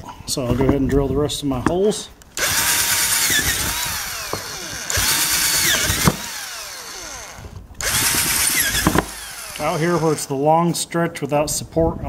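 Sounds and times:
electric drill whining: 2.4 - 10.4.

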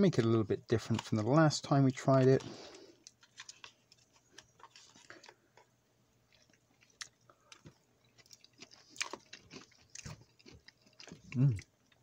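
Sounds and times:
chewing crunchy food: 1.9 - 5.7, 6.3 - 12.0.

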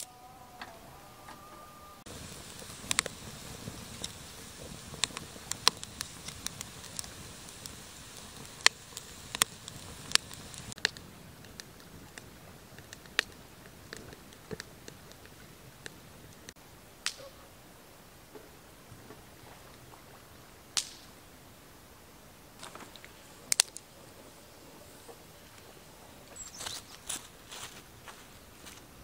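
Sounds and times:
twig fire crackling and popping: 2.1 - 17.4, 20.7 - 21.2, 22.6 - 24.0, 25.0 - 28.8.

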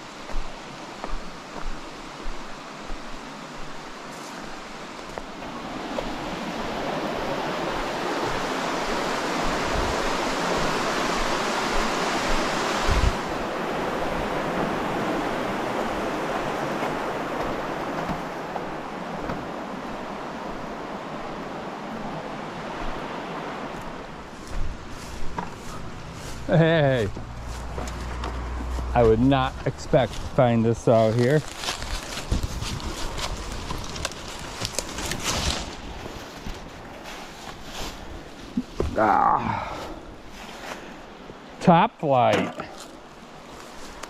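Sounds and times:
creek water rushing over rocks: 0.0 - 44.0
footsteps on stone: 0.2 - 6.2, 23.7 - 29.3, 29.9 - 39.0.

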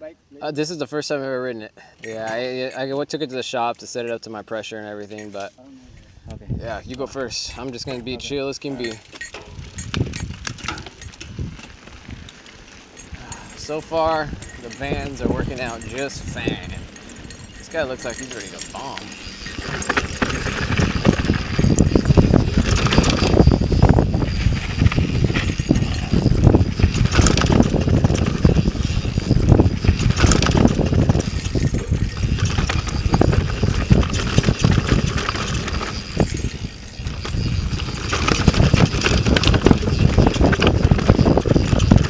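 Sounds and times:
wind rumble on microphone: 5.9 - 42.0
bike clattering over rough ground: 8.8 - 42.0.

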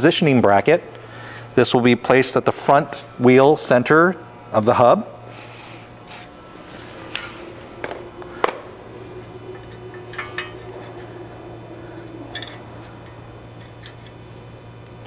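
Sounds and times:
metal bracket clanking: 9.4 - 11.2, 12.0 - 14.2.

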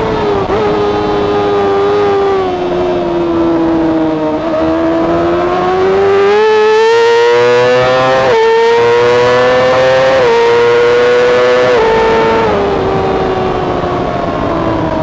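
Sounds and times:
motorcycle engine at full throttle: 0.0 - 15.0.

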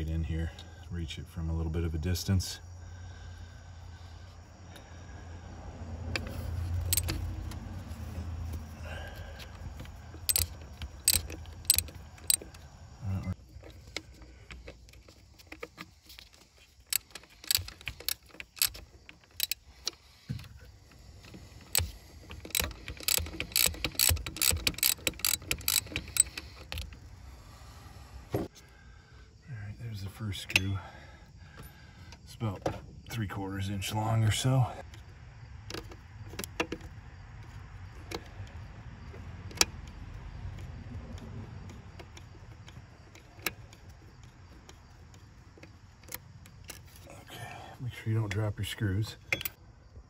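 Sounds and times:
ratchet clicking: 6.2 - 7.6, 9.5 - 12.6, 13.7 - 20.6, 21.2 - 27.0.

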